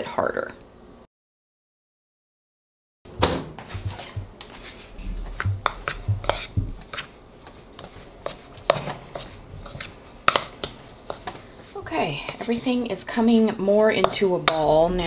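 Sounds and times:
soft thuds: 3.2 - 6.9
dough knocking against bowl: 5.2 - 7.1, 9.8 - 11.4.

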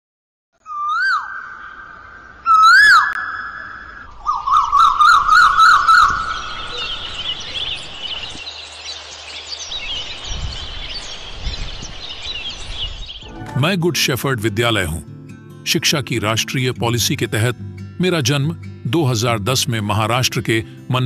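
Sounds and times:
small birds chirping: 0.6 - 13.3.

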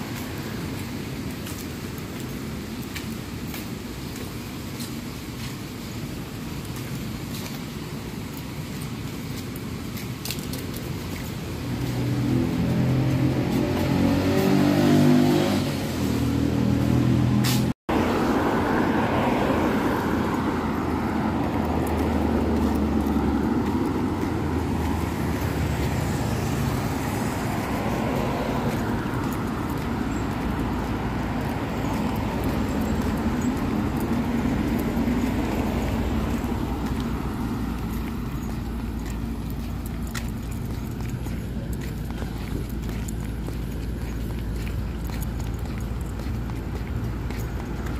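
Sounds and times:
passing traffic rush: 0.0 - 47.9
vehicle engine running: 20.3 - 47.9.

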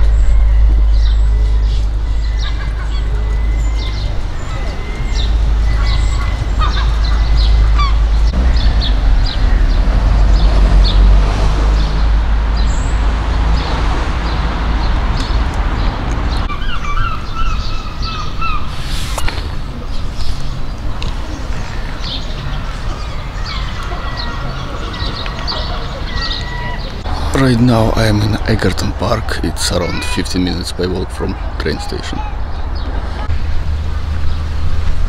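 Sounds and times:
geese honking: 0.0 - 8.4
small birds chirping: 0.0 - 11.1, 11.8 - 34.6
rushing noise: 0.0 - 16.6, 17.6 - 21.0
steady low rumble: 0.0 - 25.3, 26.9 - 29.3, 32.2 - 35.0.

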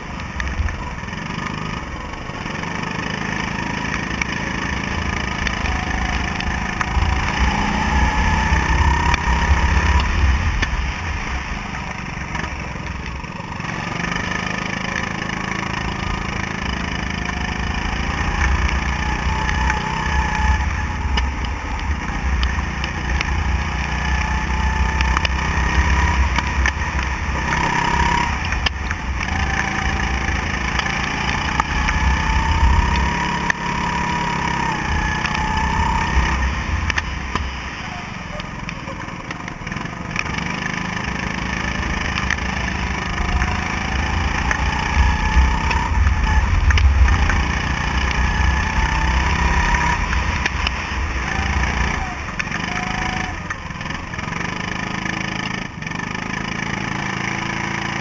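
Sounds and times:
go-kart engine running: 0.0 - 58.0
low rumble: 43.0 - 52.5.

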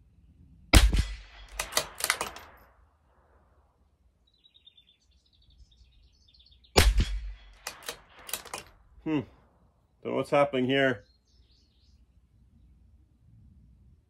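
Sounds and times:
rifle shot: 0.7 - 2.8, 6.8 - 8.7
rifle bolt metallic clicks: 0.8 - 2.6, 6.8 - 8.8
faint bird chirps: 4.2 - 6.8, 10.8 - 12.9.

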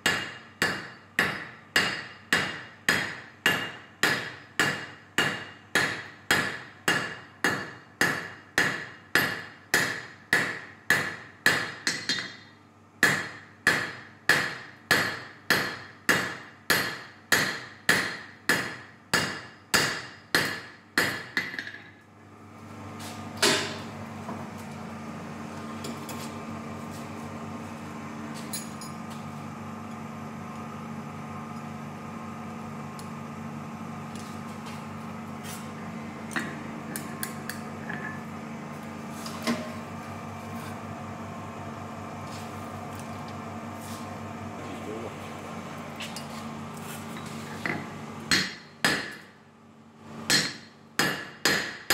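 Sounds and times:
hammer striking steel on anvil: 0.0 - 22.0, 23.4 - 23.9, 47.7 - 49.3, 50.3 - 51.9
steady hum: 22.1 - 51.8.

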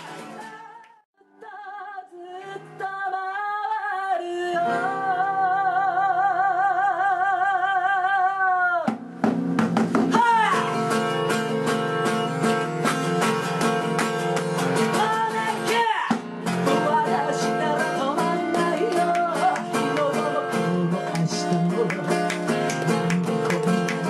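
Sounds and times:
strummed acoustic guitar: 0.0 - 0.7, 8.9 - 24.0
woman singing with vibrato: 0.3 - 8.9, 10.1 - 10.9, 14.9 - 24.0.

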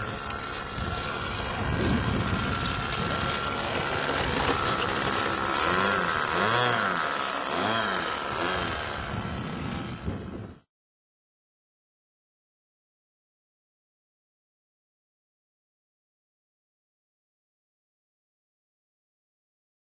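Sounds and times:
model aeroplane motor whining: 0.0 - 10.7.

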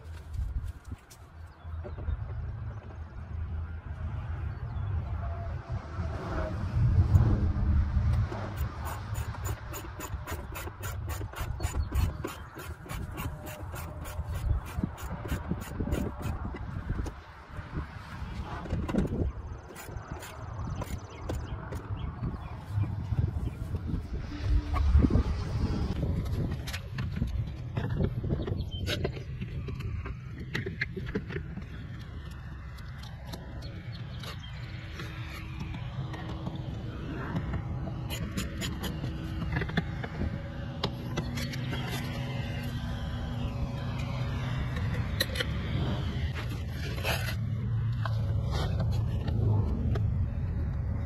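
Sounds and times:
low rumble: 2.1 - 9.0, 16.2 - 28.8, 31.5 - 51.0.

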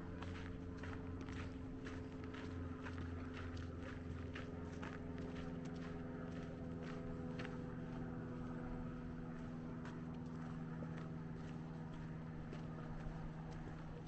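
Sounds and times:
footsteps on sandy dirt: 0.0 - 14.0
steady low hum: 0.0 - 14.0.

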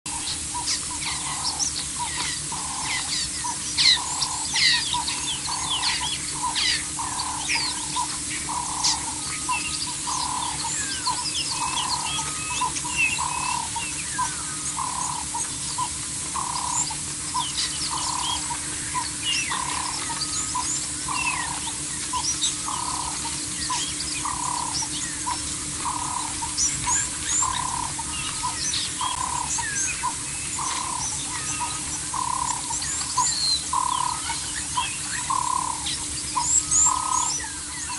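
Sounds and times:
birds chirping and whistling: 0.1 - 37.9.

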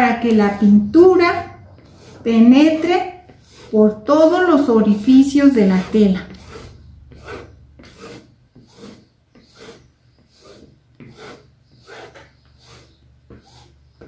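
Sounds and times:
spatula scraping wet canvas: 0.0 - 14.0.

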